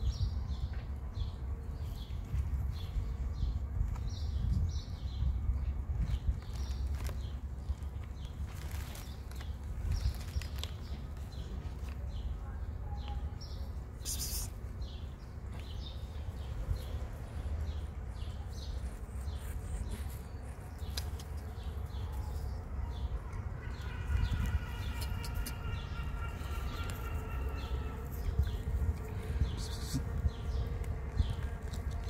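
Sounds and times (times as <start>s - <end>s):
steady low rumble: 14.6s - 32.0s.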